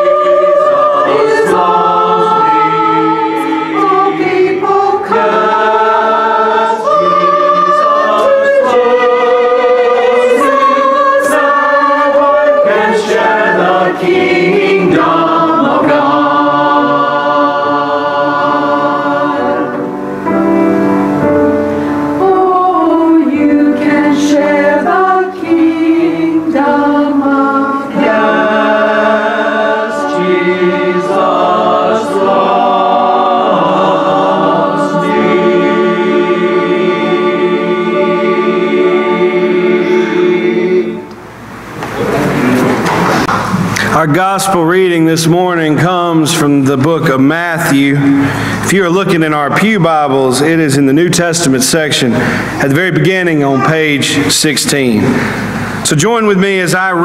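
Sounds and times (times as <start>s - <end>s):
church choir singing: 0.0s - 57.0s.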